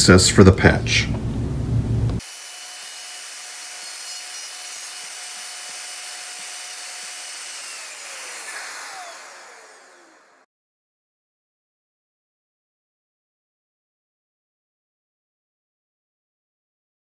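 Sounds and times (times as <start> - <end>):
router whining: 2.1 - 10.5.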